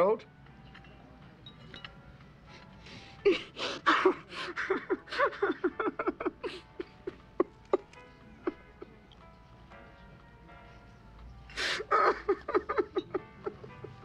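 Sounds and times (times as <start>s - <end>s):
man sobbing and moaning: 3.2s - 9.0s, 11.5s - 14.0s.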